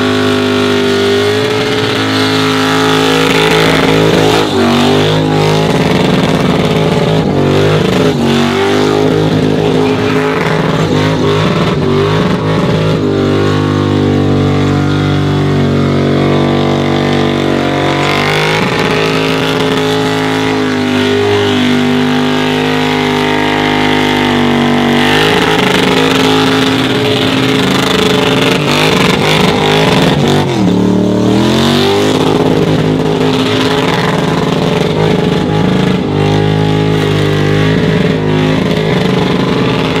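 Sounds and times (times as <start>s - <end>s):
car engine revving high: 0.0s - 40.0s.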